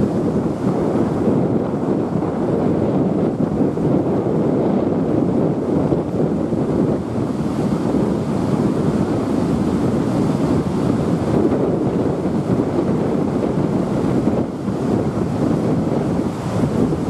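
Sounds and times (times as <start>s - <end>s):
wind noise on microphone: 0.0s - 17.0s
river water rushing over weir: 6.0s - 17.0s.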